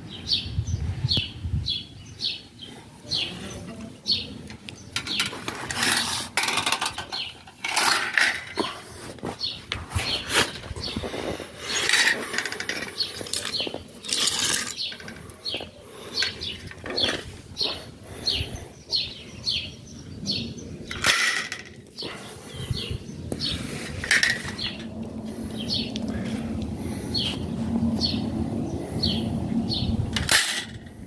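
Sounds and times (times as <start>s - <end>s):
small birds chirping: 0.0s - 30.1s
wire grilling basket clattering: 5.0s - 8.8s.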